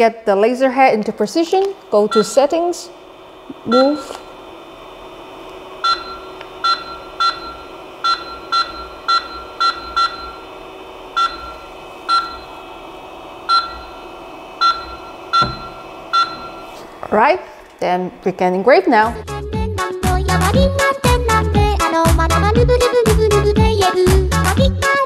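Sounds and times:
steady hum: 0.0s - 25.0s
touchscreen beeps: 2.1s - 2.4s, 3.6s - 4.2s, 5.8s - 10.4s, 14.6s - 16.7s.

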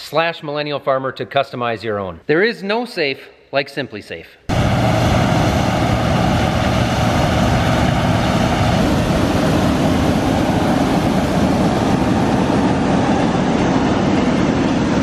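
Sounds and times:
combine harvester running: 4.5s - 15.0s.

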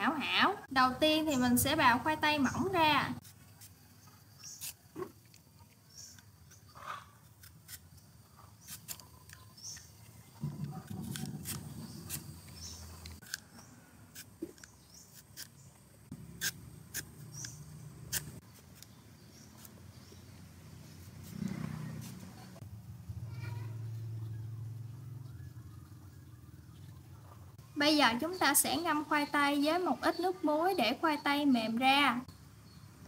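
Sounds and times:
peeler scraping potato: 3.2s - 20.2s.

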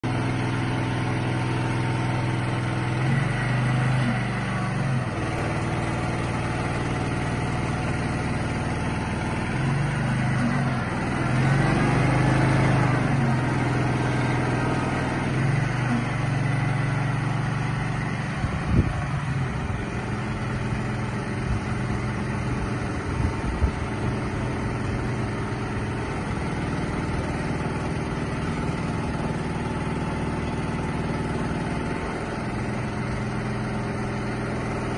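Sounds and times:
crane engine running: 0.0s - 34.9s.

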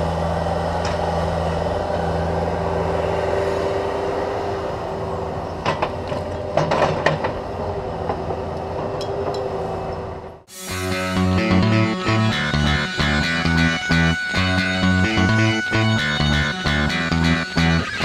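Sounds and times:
excavator diesel engine running: 0.0s - 18.0s.

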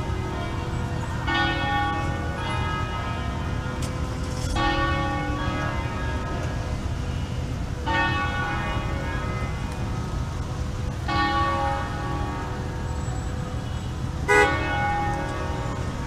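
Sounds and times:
bells ringing: 0.0s - 16.0s
low rumble of traffic: 0.0s - 16.0s.

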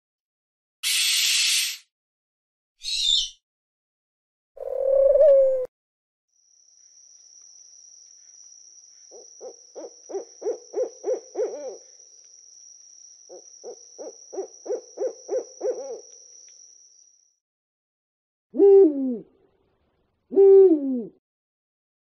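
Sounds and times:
owl hooting: 2.8s - 3.4s, 4.6s - 5.7s, 9.1s - 12.0s, 13.3s - 16.2s, 18.6s - 19.4s, 20.3s - 21.2s
high-pitched insect drone: 6.4s - 17.4s.

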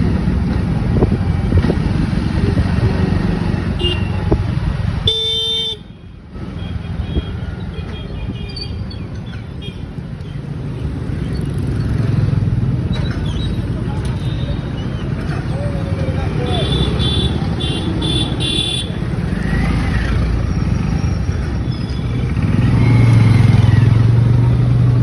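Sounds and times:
wind and road rumble: 0.0s - 25.0s
vehicle horn: 3.8s - 4.2s, 5.0s - 6.0s, 16.6s - 19.0s.

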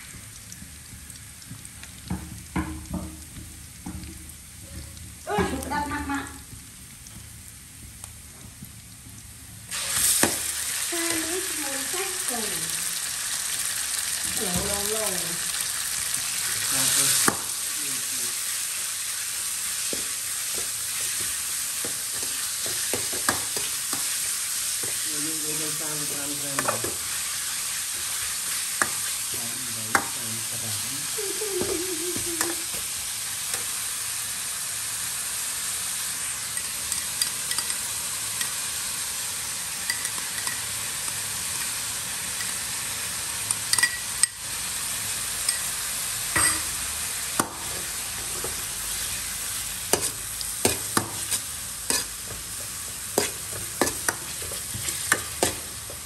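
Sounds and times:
meat and garlic sizzling in a wok: 0.0s - 56.0s
metal ladle stirring and scraping: 50.0s - 55.8s.

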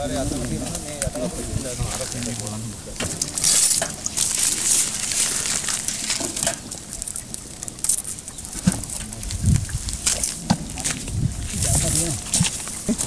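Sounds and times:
plastic packaging crinkling: 3.2s - 8.6s.

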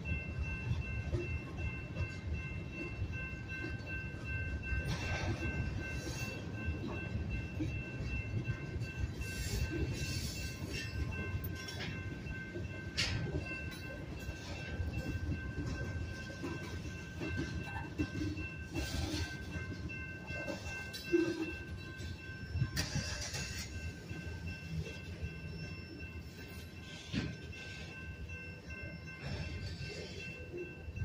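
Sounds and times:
train wheels rumbling on track: 0.0s - 31.0s.

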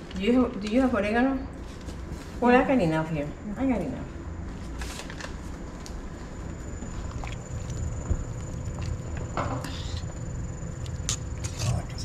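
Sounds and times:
faint whine: 1.4s - 12.0s
low hum: 5.5s - 12.0s.

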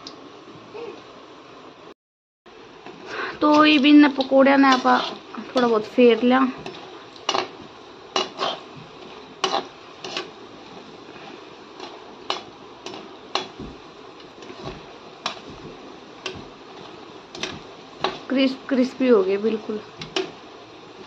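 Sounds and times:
food sizzling in oil: 2.5s - 21.0s
spatula scraping a pan: 2.9s - 20.5s.

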